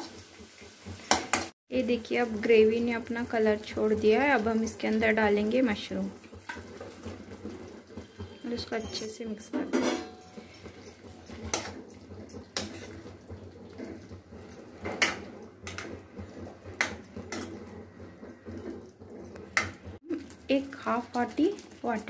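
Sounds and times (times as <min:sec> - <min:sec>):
spoon stirring thick gravy: 0:03.3 - 0:08.5, 0:10.3 - 0:22.0.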